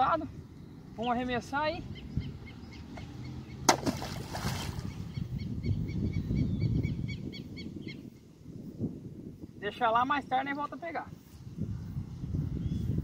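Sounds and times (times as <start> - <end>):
wind rumble on microphone: 0.0 - 13.0
object splashing into water: 3.7 - 4.9.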